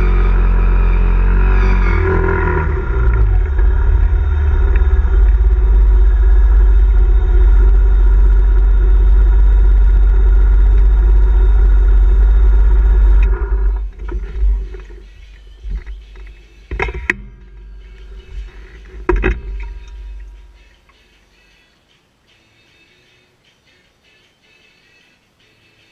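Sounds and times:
scooter engine revving: 0.0s - 20.4s.

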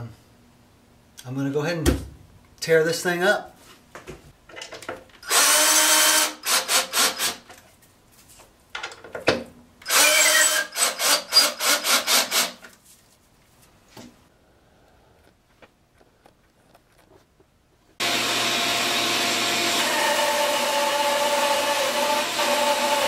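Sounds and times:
cordless drill driving screws: 5.2s - 7.4s, 9.8s - 12.6s, 18.0s - 23.0s.

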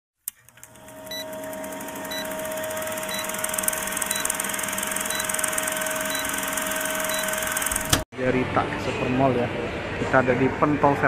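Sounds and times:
film projector whirring: 0.4s - 8.0s
short beeps: 6.0s - 6.4s.

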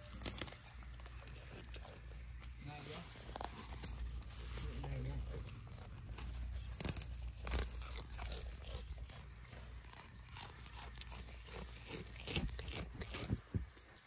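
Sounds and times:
goat chewing grass: 0.0s - 14.0s.

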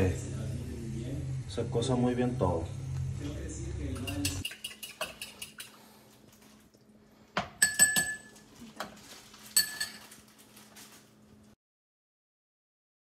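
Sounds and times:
faint steady hum: 0.0s - 8.8s
metal utensil clinking on pot: 4.0s - 5.7s, 7.6s - 8.4s, 9.6s - 10.1s.

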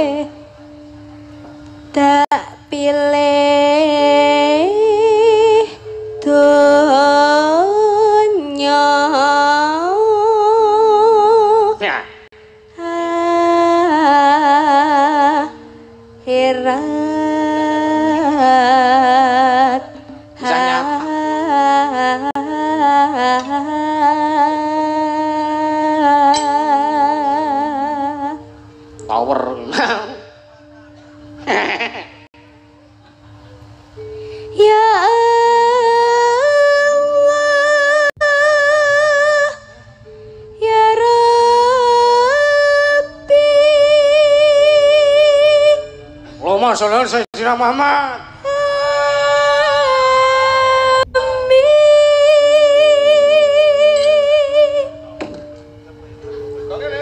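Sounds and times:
woman singing with vibrato: 0.0s - 1.2s, 1.8s - 32.3s, 34.0s - 46.4s, 47.9s - 56.6s
sustained instrumental accompaniment: 0.0s - 57.0s.

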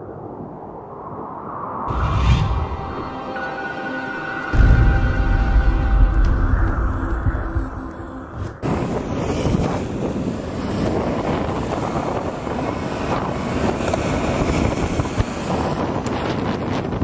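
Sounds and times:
wind rushing over microphone: 4.5s - 17.0s
wheels rolling on rough asphalt: 8.7s - 17.0s.

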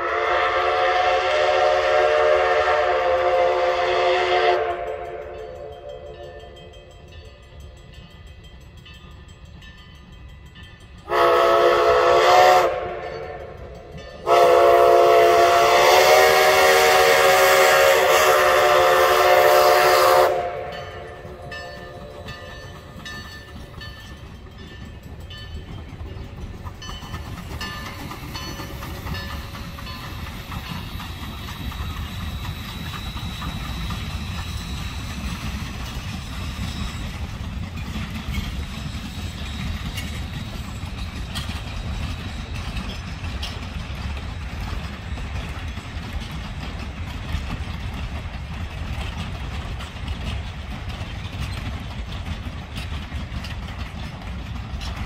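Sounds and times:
steam locomotive whistle: 0.0s - 6.7s, 11.0s - 22.5s, 28.8s - 37.3s
train rumbling: 0.0s - 55.0s.

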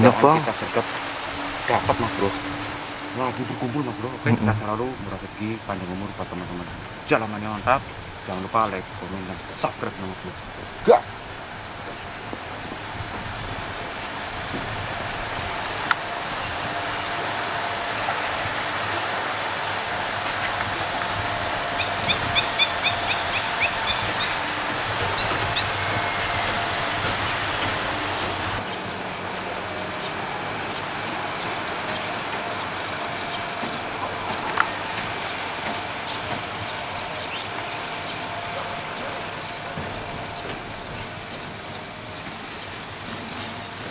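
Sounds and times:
rush of falling water: 0.0s - 43.9s
bird trilling: 15.2s - 43.9s.

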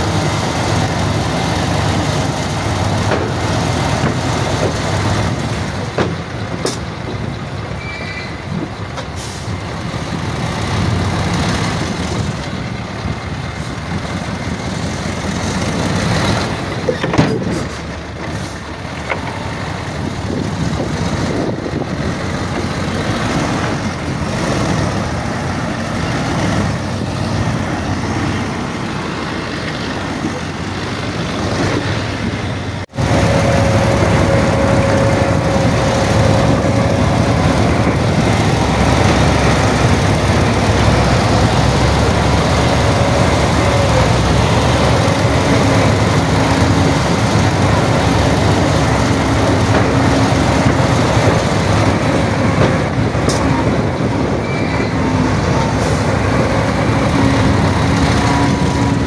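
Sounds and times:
heavy diesel machinery running: 0.0s - 59.0s.

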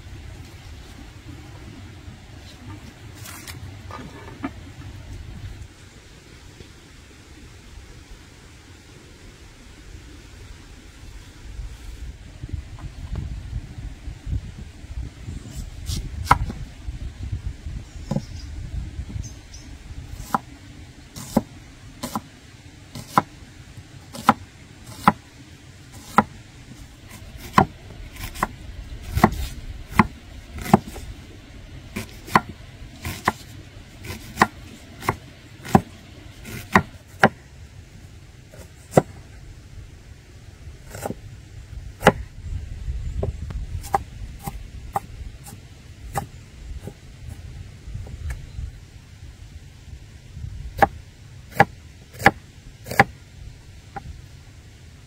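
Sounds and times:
knife chopping on wooden board: 24.2s - 25.2s, 26.0s - 26.3s, 27.4s - 28.5s, 29.1s - 31.0s, 32.0s - 37.4s.

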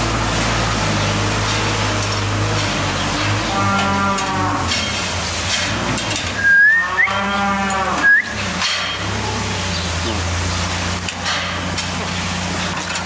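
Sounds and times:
tractor engine running: 0.0s - 3.6s
cows mooing: 1.2s - 5.1s, 6.4s - 10.4s
short high rising squeaks: 6.3s - 8.4s.

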